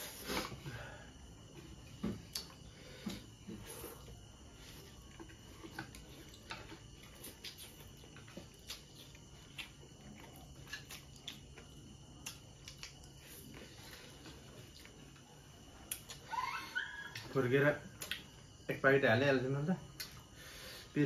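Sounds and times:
wet mouth clicks: 0:12.2 - 0:13.2, 0:15.8 - 0:16.2, 0:18.0 - 0:18.3.

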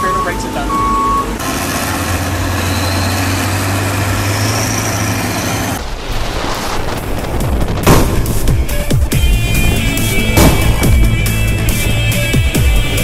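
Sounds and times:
engine running: 0:00.0 - 0:06.0, 0:06.8 - 0:13.0
loud thump: 0:06.2 - 0:09.2, 0:10.3 - 0:11.2.

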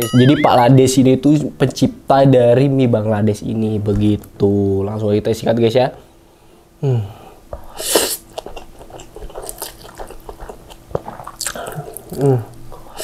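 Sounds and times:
wet chewing: 0:08.0 - 0:12.8.

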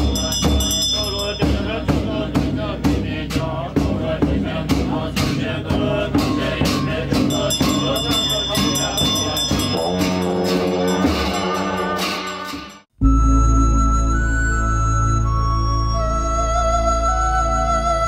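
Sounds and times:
struck percussion beat: 0:00.0 - 0:12.9
jingling: 0:00.1 - 0:01.8, 0:07.2 - 0:12.8.

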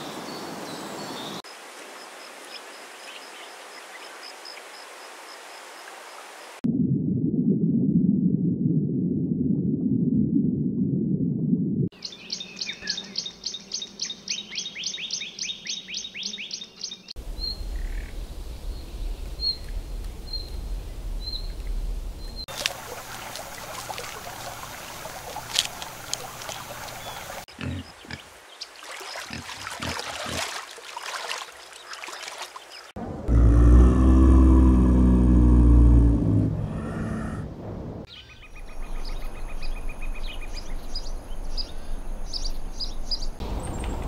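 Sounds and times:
hissy outdoor ambience: 0:00.0 - 0:06.6, 0:11.9 - 0:30.8
low rumble: 0:17.2 - 0:22.4, 0:33.0 - 0:38.1.

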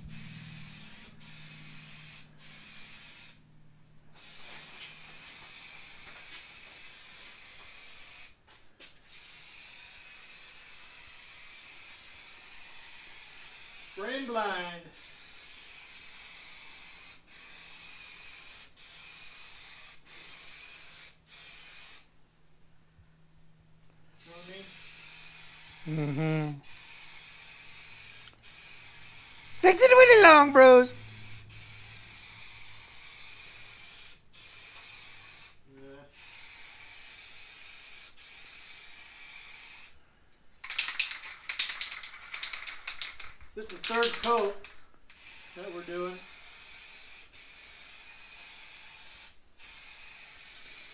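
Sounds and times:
spray-paint can hissing: 0:00.0 - 0:03.5, 0:04.2 - 0:08.4, 0:09.1 - 0:22.1, 0:24.2 - 0:40.0, 0:40.6 - 0:50.9
spray can ball rattling: 0:04.2 - 0:08.4, 0:40.6 - 0:50.9.

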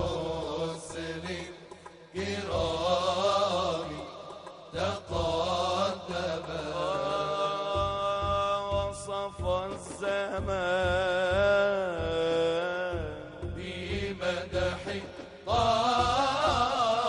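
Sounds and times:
men chanting: 0:00.0 - 0:17.0
solo male voice singing: 0:00.0 - 0:17.0
low regular thuds: 0:07.7 - 0:16.7.

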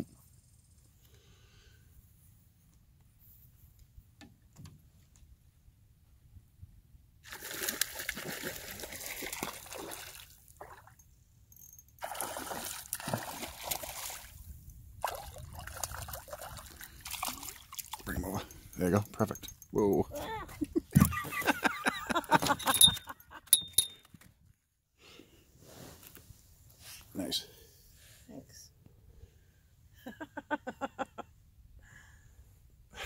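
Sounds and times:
fish splashing in water: 0:07.3 - 0:10.4, 0:12.0 - 0:14.3, 0:15.0 - 0:18.0.

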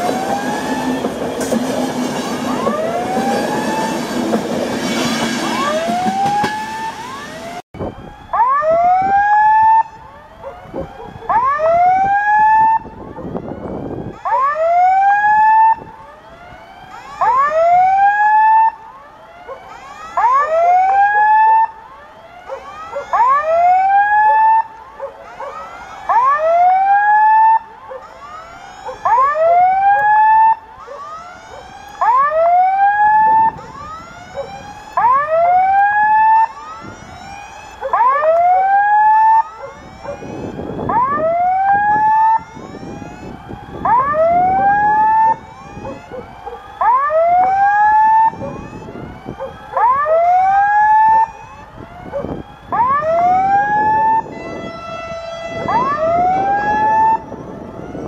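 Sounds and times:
level crossing warning whoops: 0:05.4 - 0:07.6.

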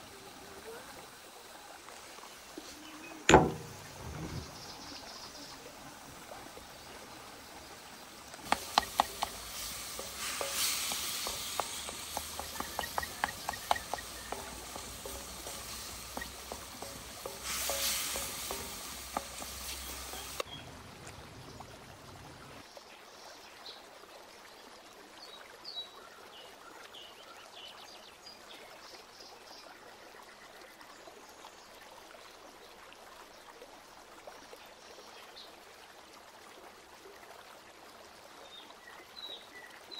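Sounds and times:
sizzling hiss: 0:00.0 - 0:20.4
faint chirps: 0:06.6 - 0:20.4
utensil clicks and knocks: 0:08.4 - 0:17.4.

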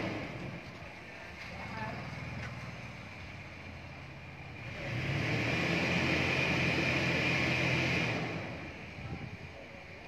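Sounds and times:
car engine revving: 0:00.0 - 0:00.7, 0:01.7 - 0:09.0.

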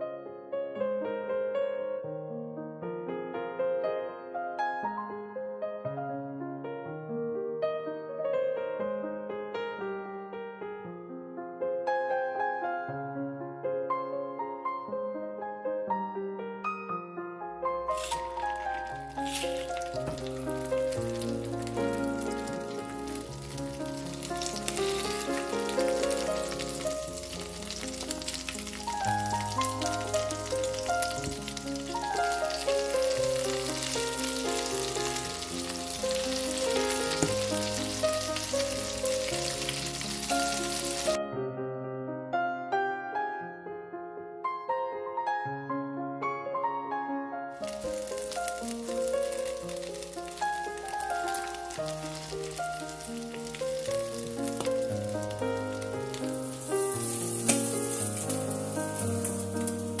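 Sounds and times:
gentle piano music: 0:00.0 - 1:00.0
background music: 0:17.7 - 0:41.2
patties sizzling in frying pan: 0:17.9 - 0:41.2, 0:47.6 - 1:00.0
spatula scraping pan: 0:56.5 - 1:00.0.

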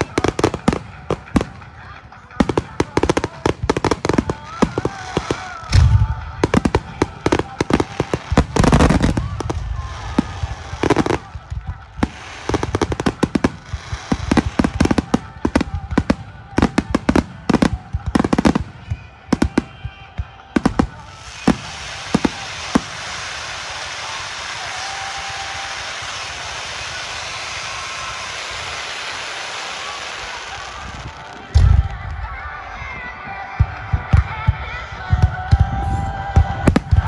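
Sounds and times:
fireworks bursting: 0:00.0 - 0:37.0.

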